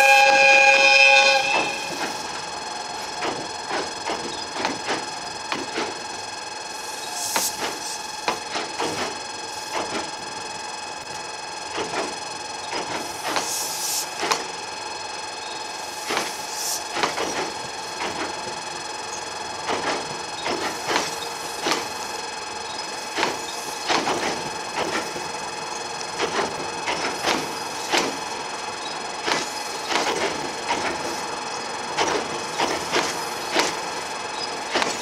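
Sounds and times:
wheels clacking over rail joints: 23.1 - 25.3, 28.8 - 31.2, 31.9 - 35.0.

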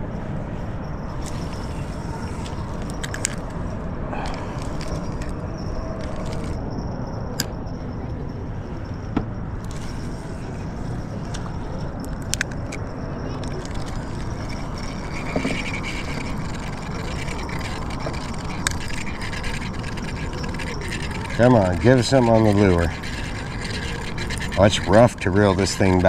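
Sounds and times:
fishing reel clicks: 2.4 - 3.6, 4.2 - 5.4, 6.0 - 6.6, 11.3 - 12.8, 13.4 - 26.0.

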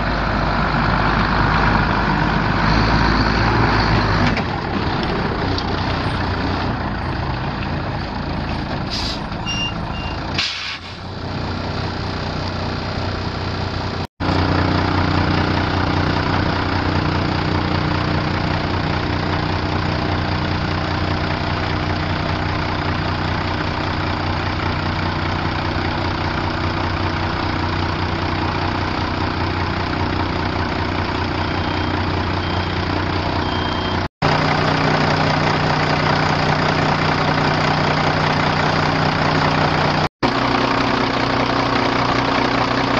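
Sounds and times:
diesel engine running: 0.0 - 42.9
short high beeps: 9.4 - 10.2, 33.4 - 34.0.

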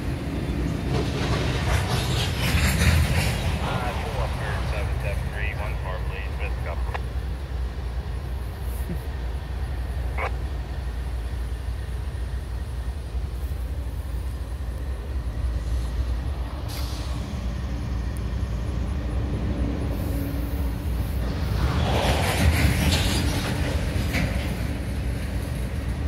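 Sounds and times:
diesel locomotive idling: 0.0 - 21.6
air brakes hissing: 16.6 - 17.4.

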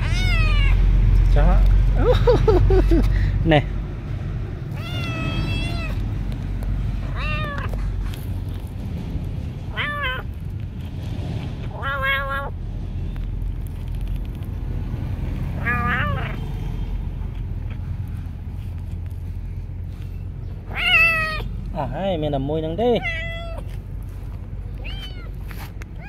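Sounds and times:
kitten meowing: 0.0 - 0.8, 4.7 - 6.2, 7.0 - 7.8, 9.7 - 10.4, 11.7 - 12.6, 15.5 - 16.4, 20.6 - 21.6, 22.8 - 23.8, 24.7 - 26.0
steady low rumble: 0.0 - 26.0.

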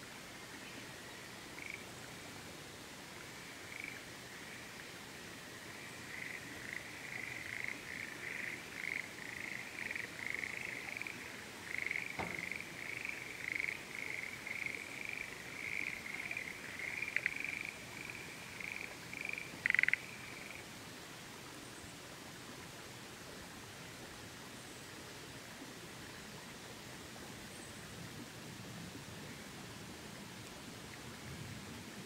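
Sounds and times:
frog croaking: 1.6 - 1.9, 3.4 - 4.8, 5.8 - 20.6.

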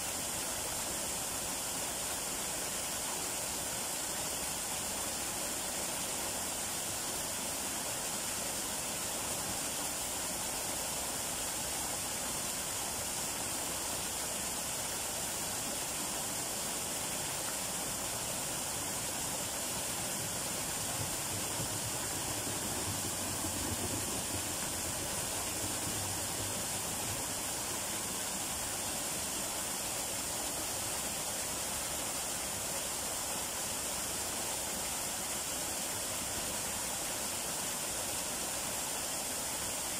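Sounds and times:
small waterfall splashing: 0.0 - 39.9.

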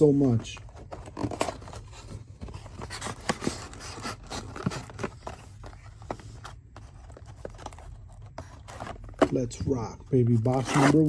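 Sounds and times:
cardboard clicks and scrapes: 0.7 - 9.5.

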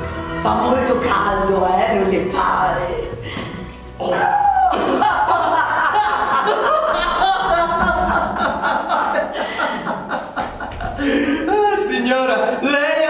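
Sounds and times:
man and woman laughing: 4.7 - 11.6.

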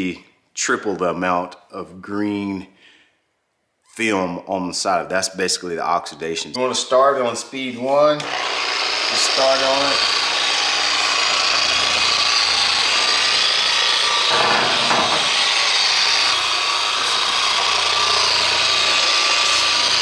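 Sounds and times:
polisher running: 7.6 - 20.0.

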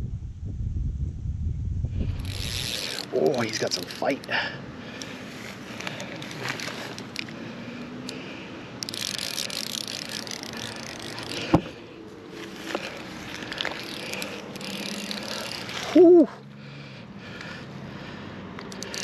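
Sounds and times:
fly reel clicking: 2.0 - 16.3, 18.6 - 19.0.

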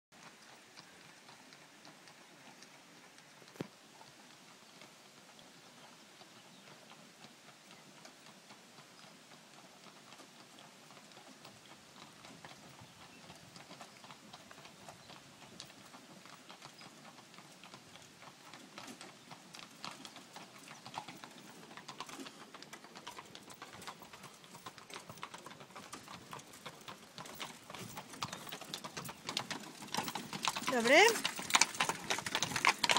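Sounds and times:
horse hooves on cobblestones: 0.2 - 32.9.

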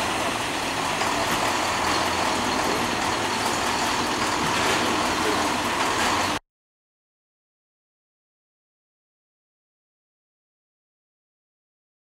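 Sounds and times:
truck and crane engines running: 0.0 - 6.4.

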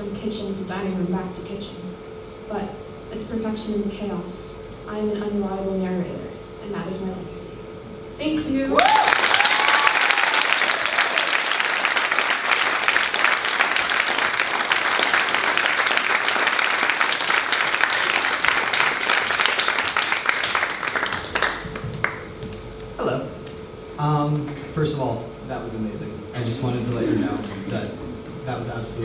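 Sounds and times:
audience applauding: 8.8 - 22.6.

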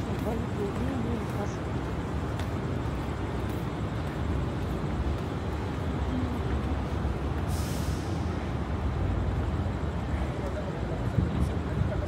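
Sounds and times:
street traffic rumble: 0.0 - 12.0
air hiss: 7.4 - 8.4.

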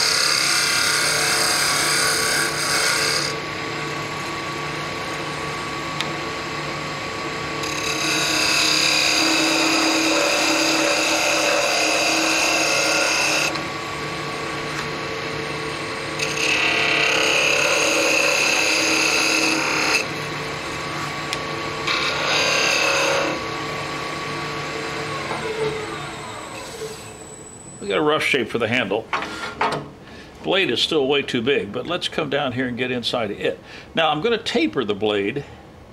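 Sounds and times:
wood lathe humming: 0.0 - 26.6
turning tool cutting whine: 0.0 - 26.9.

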